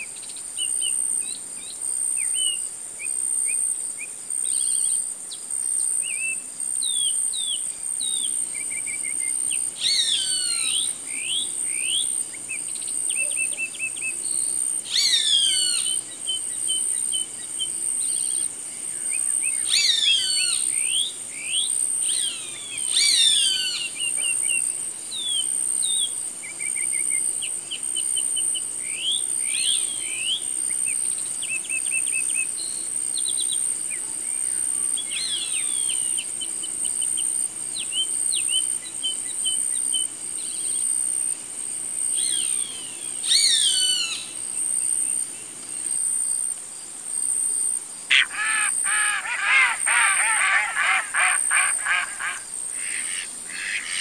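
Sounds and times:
high insect drone: 0:00.0 - 0:54.0
birds chirping and trilling: 0:06.9 - 0:18.3, 0:19.2 - 0:25.5, 0:48.1 - 0:54.0
hawk screaming: 0:48.1 - 0:54.0.

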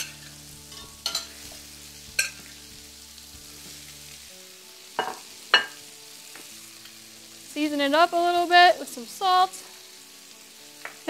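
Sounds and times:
food sizzling in a pan: 0:00.0 - 0:11.0
utensil clinking against pan: 0:00.7 - 0:01.3.

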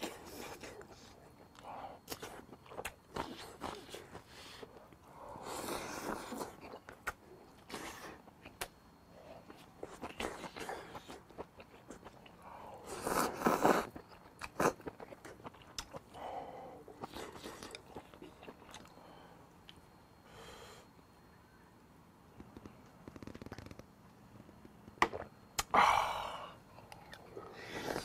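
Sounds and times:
slurping and chewing: 0:00.0 - 0:16.2, 0:16.8 - 0:19.0, 0:26.9 - 0:28.0.

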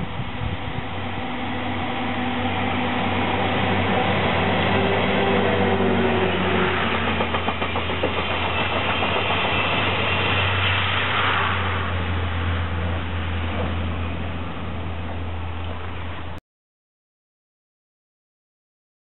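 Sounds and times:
train wheels clicking over rail joints: 0:05.8 - 0:11.4.

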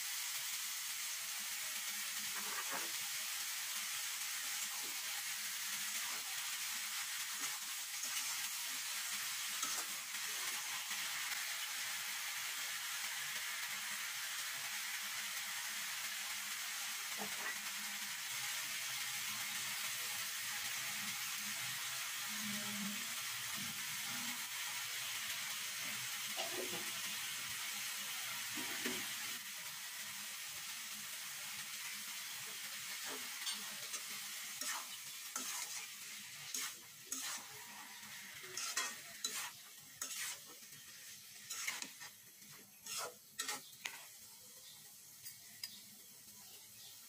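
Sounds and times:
fruit sizzling in a wok: 0:00.0 - 0:47.0
metal spoon scraping a wok: 0:02.2 - 0:03.1, 0:09.4 - 0:10.7, 0:32.9 - 0:44.1.

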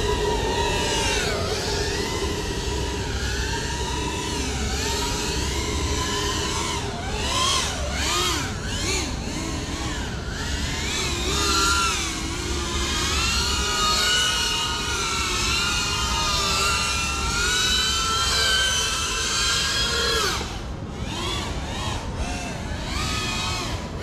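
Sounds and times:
drone propellers whining: 0:00.0 - 0:24.0.

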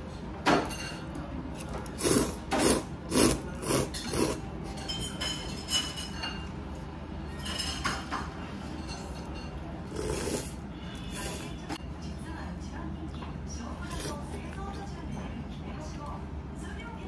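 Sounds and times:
person slurping noodles: 0:01.9 - 0:04.4, 0:09.8 - 0:11.6
soft slurping soup from spoon: 0:09.8 - 0:11.7.

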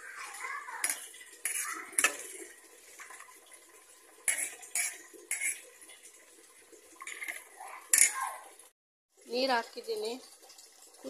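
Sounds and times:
spoon clinking against pot: 0:00.8 - 0:02.4, 0:04.3 - 0:05.6, 0:07.0 - 0:08.2.

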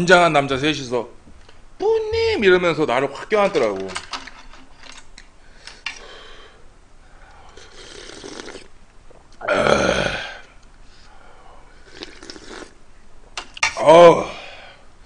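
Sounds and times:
breathing: 0:05.4 - 0:07.8, 0:10.4 - 0:12.0, 0:14.3 - 0:14.9
person slurping broth: 0:07.5 - 0:10.6, 0:11.8 - 0:12.8.

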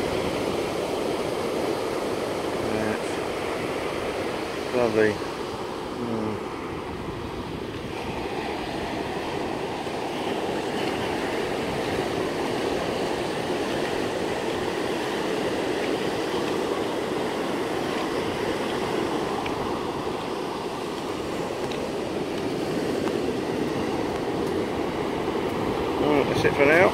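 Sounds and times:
surf breaking on beach: 0:00.0 - 0:26.9.

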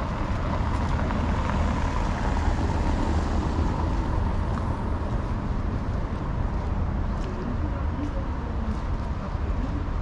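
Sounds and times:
road traffic rumble: 0:00.0 - 0:10.0.

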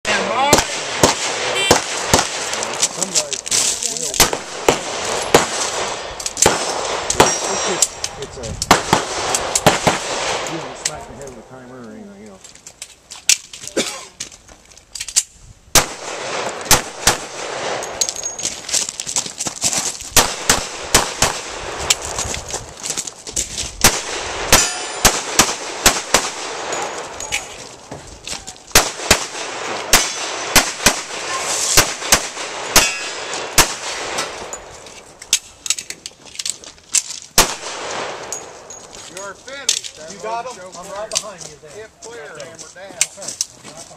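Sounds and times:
pistol shots: 0:00.3 - 0:03.0, 0:04.2 - 0:08.1, 0:08.7 - 0:10.8, 0:15.7 - 0:18.0, 0:20.2 - 0:22.1, 0:23.8 - 0:27.1, 0:28.7 - 0:34.6, 0:37.4 - 0:38.6.

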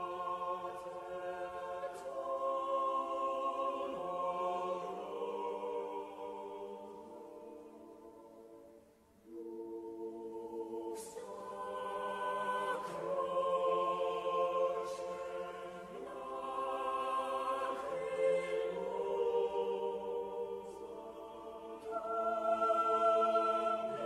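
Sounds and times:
choir-like chord music: 0:00.0 - 0:24.0.

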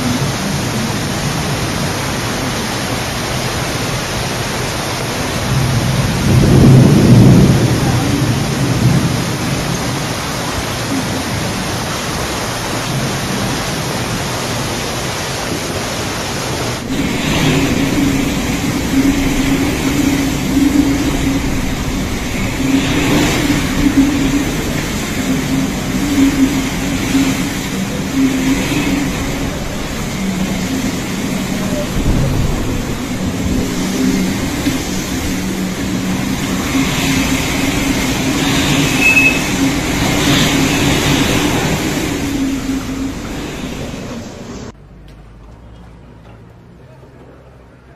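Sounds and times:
storm wind: 0:00.0 - 0:44.8
driving rain: 0:00.0 - 0:45.4
low hum: 0:16.2 - 0:45.8.

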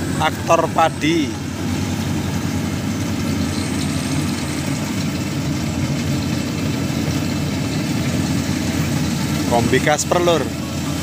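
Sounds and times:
harvester engine droning: 0:00.0 - 0:11.0.

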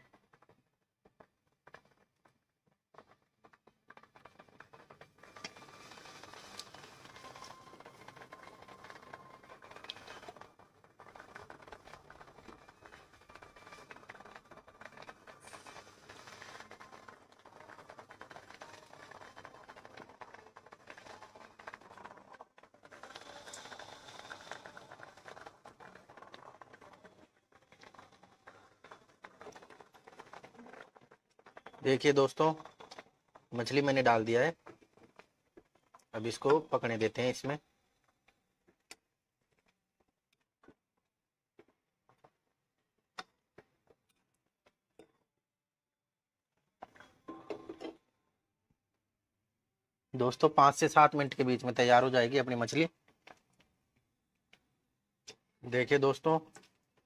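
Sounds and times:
curry simmering pops: 0:00.0 - 0:45.3.

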